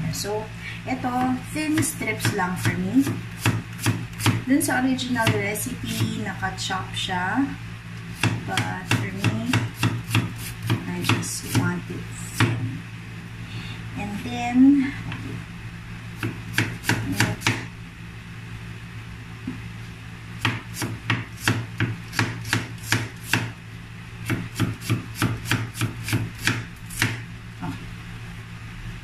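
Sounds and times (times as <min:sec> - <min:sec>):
knife slicing onion on plastic board: 0:01.6 - 0:04.5, 0:08.2 - 0:11.8, 0:16.2 - 0:17.6, 0:20.4 - 0:23.6, 0:24.2 - 0:27.8.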